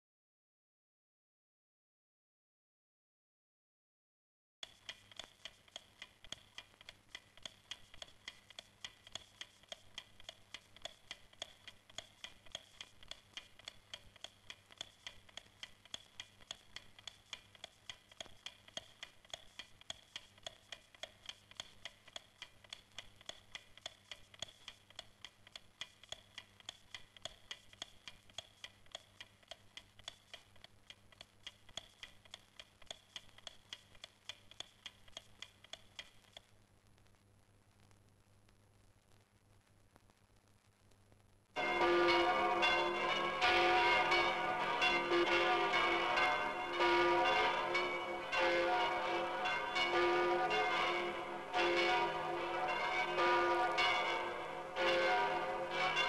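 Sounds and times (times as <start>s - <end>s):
faint regular ticking: 4.6s - 41.8s.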